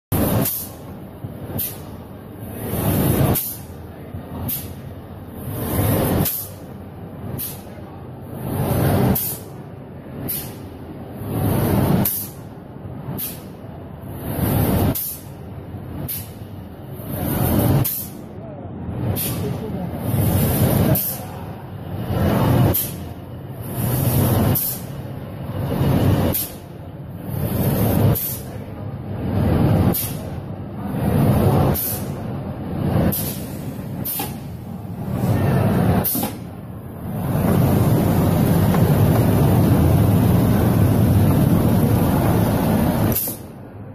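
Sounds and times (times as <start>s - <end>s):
pneumatic air hiss: 0.2s - 0.8s, 1.5s - 2.0s, 2.8s - 3.7s, 4.4s - 4.8s, 6.0s - 6.7s, 7.3s - 7.8s, 9.0s - 9.6s, 10.2s - 10.7s, 11.8s - 12.5s, 13.1s - 13.6s, 14.4s - 15.4s, 16.0s - 16.4s, 17.2s - 18.2s, 19.1s - 19.4s, 20.2s - 21.4s, 22.6s - 23.1s, 23.7s - 25.0s, 26.2s - 26.6s, 27.4s - 28.5s, 29.9s - 30.3s, 31.7s - 32.2s, 33.1s - 34.6s, 36.0s - 36.4s, 43.0s - 43.5s
machine mechanical whir: 0.2s - 43.9s.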